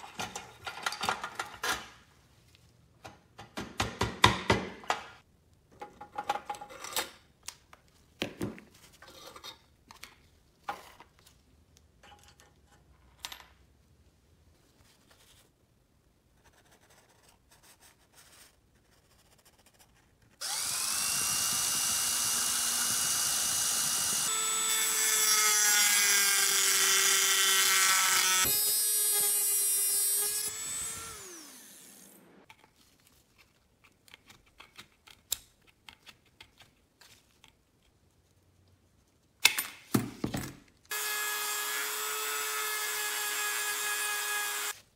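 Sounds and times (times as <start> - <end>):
rotary power tool running: 20.4 - 32.4, 40.9 - 44.8.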